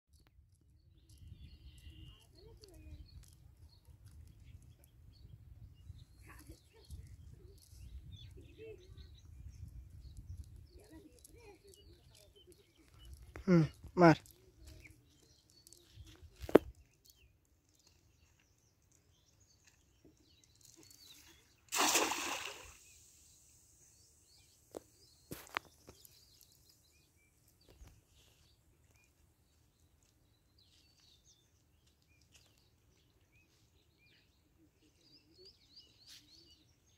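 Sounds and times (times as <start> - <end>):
faint bird chirps: 0.3 - 36.9
wind rumble on microphone: 0.6 - 11.0
net splashing into water: 21.7 - 23.2.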